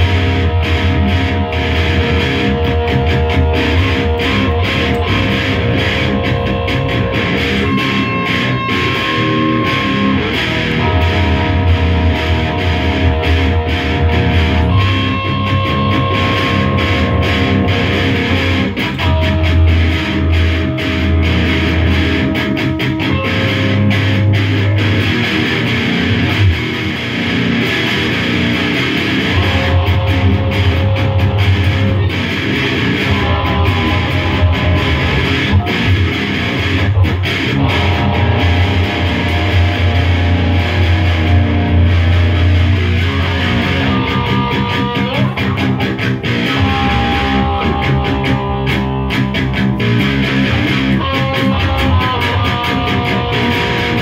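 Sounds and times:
bass guitar: 0.0 - 54.0
electric guitar: 0.0 - 54.0.

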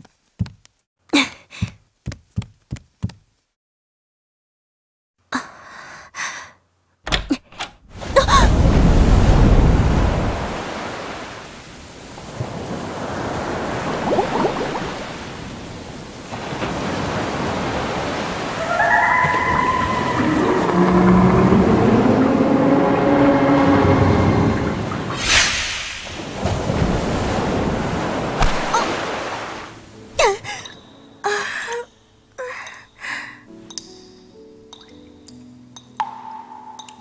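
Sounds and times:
churning rushing water: 8.0 - 30.7
low falling tones: 20.1 - 25.2.

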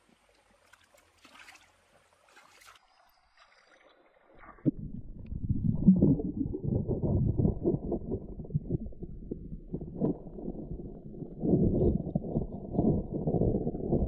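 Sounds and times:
light splashing of stream water: 0.0 - 4.6
underwater churning and bubbling: 4.2 - 14.0.

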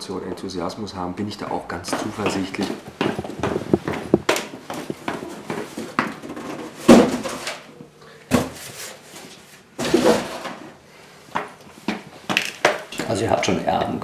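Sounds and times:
cardboard boxes scraping and knocking: 1.9 - 7.6, 8.3 - 10.8.

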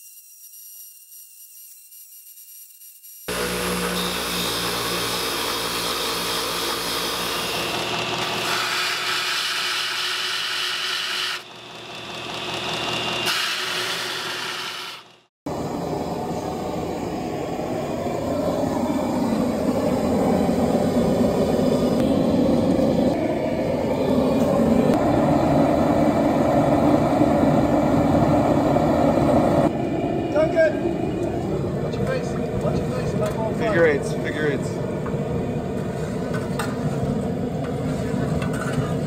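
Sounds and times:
belt grinder grinding blade: 0.0 - 15.2
bench grinder grinding steel: 3.3 - 15.2
gas forge burner roaring: 3.3 - 39.0.

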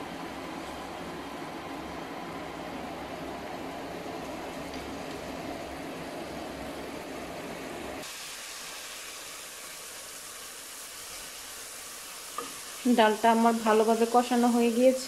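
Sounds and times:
lentils sizzling in oil: 4.0 - 15.0.

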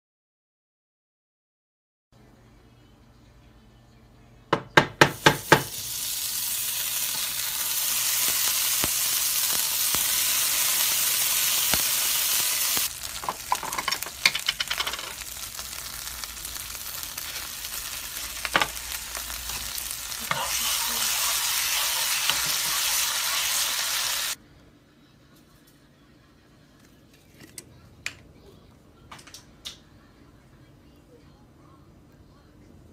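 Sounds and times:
butter sizzling in a pan: 5.1 - 24.4.

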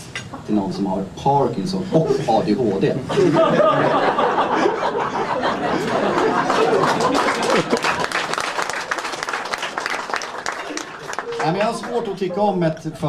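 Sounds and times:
audience laughing: 1.9 - 9.0, 10.4 - 13.0
audience applauding: 5.5 - 12.6.

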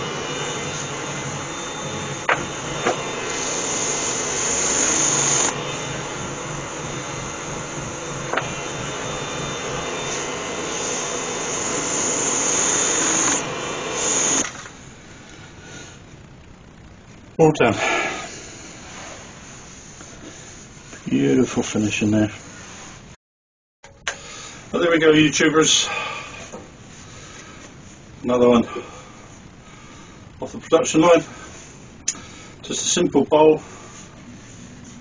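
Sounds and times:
lathe hum: 0.0 - 21.4.

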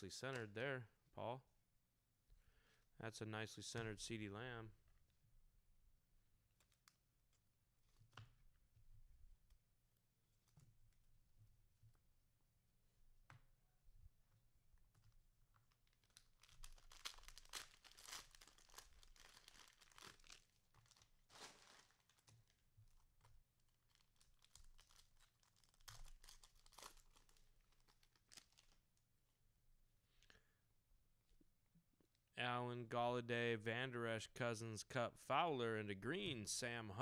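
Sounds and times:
cellophane wrapper crinkling: 6.6 - 8.2, 14.8 - 29.0.

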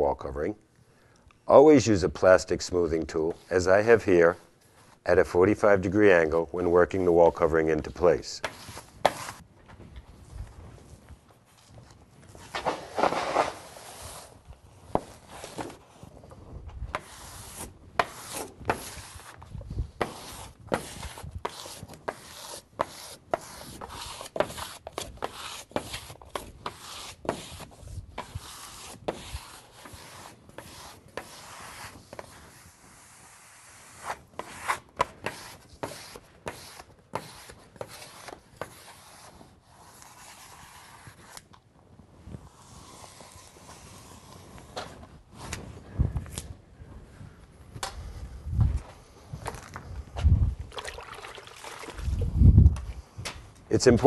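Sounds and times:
smoothing tool scraping wallcovering: 12.5 - 14.4, 15.0 - 16.0, 16.9 - 41.4, 42.4 - 44.8.

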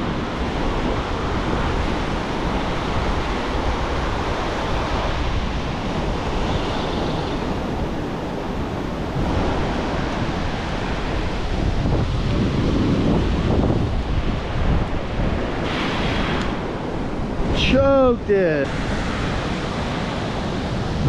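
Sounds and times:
ocean surf breaking: 0.0 - 21.0
wind rumbling on microphone: 0.0 - 21.0.

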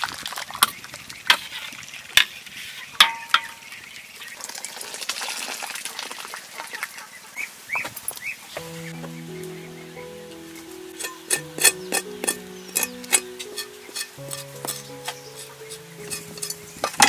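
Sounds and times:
water splashing and pouring: 0.0 - 2.8, 4.0 - 6.9
ladle clanking on metal wok: 11.0 - 17.0.

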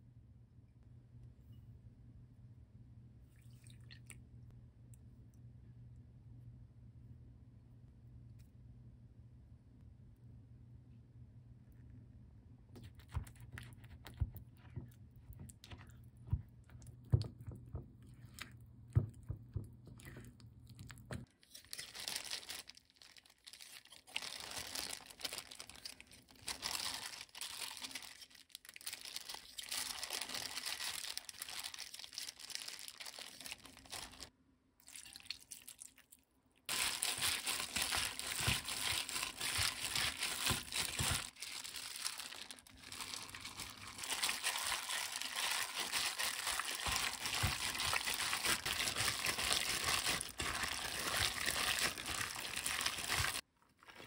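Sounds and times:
plastic glove crinkling: 20.1 - 34.3, 36.7 - 54.0.

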